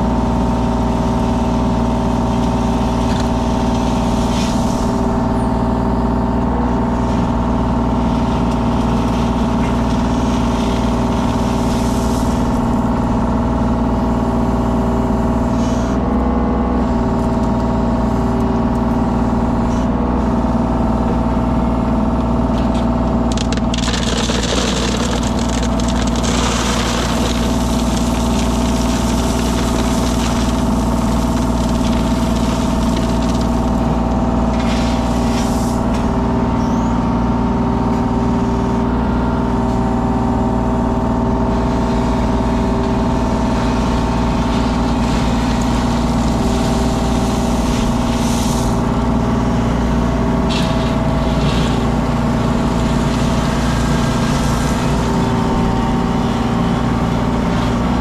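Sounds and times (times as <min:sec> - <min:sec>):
construction machine engine running: 0:00.0 - 0:58.0
rough rattling noise: 0:23.2 - 0:35.4.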